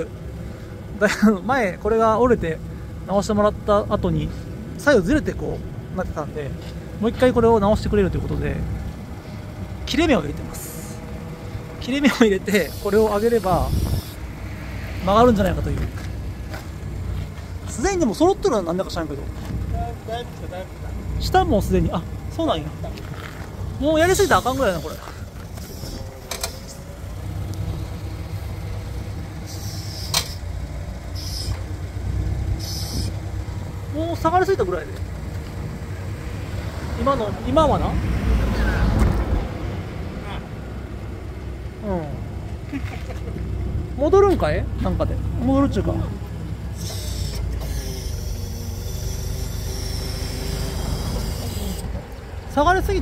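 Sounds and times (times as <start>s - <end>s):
forklift engine idling: 0.0s - 38.0s, 40.2s - 53.0s
high hydraulic hiss with whine: 12.6s - 14.3s, 29.4s - 30.5s.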